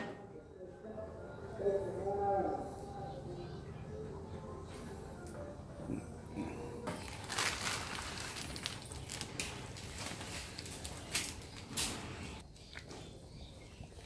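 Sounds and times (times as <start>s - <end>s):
plastic packet crinkling: 6.9s - 12.0s.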